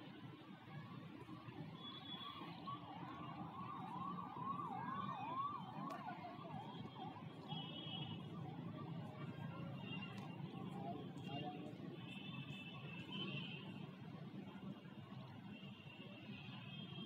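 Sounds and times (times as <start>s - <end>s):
faint yelping siren: 0.5s - 12.0s.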